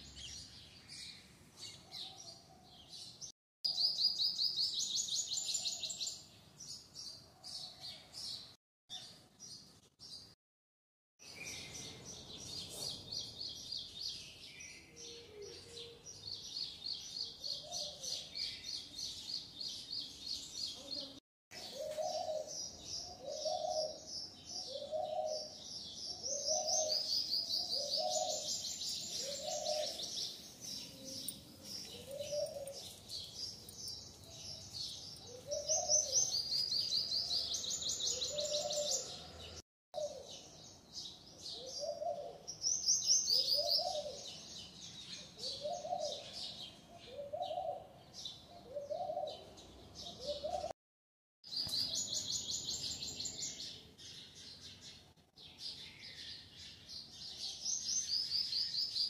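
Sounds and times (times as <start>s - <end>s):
birds chirping in high trills: 21.6s - 39.2s.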